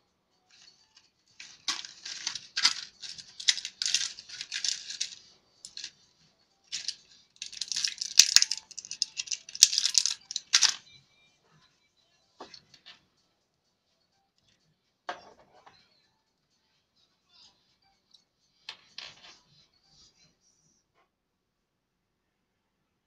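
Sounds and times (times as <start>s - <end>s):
plastic blister pack crinkling: 1.4s - 5.9s, 6.7s - 10.8s.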